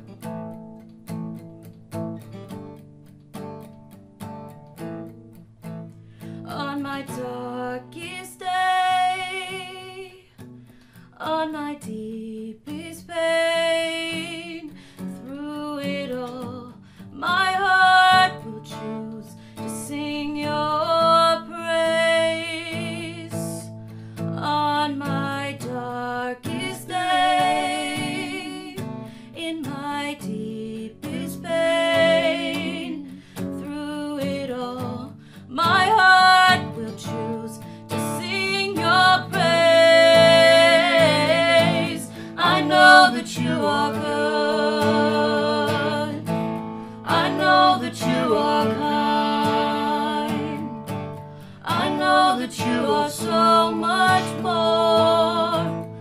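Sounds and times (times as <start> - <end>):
guitar accompaniment: 0.0 - 56.0
woman and man singing: 24.4 - 28.8, 29.4 - 46.3, 47.0 - 50.9, 51.6 - 55.9.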